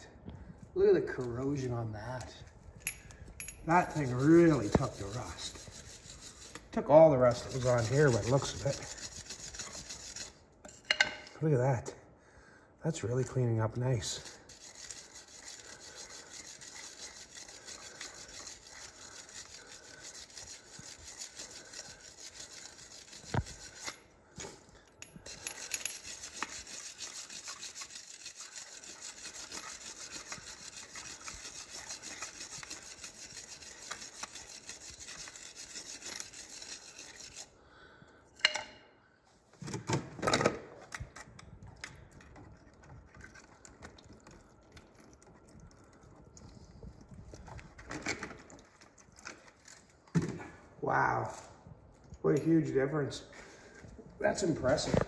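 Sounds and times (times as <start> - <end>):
wire brush scrubbing metal: 3.7 - 10.4, 13.4 - 24.1, 25.2 - 37.6.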